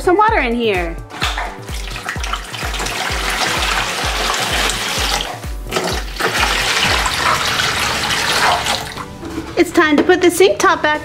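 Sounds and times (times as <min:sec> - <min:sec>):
background music with steady beat: 0:00.0 - 0:11.0
water pouring into plastic basin: 0:01.1 - 0:09.1.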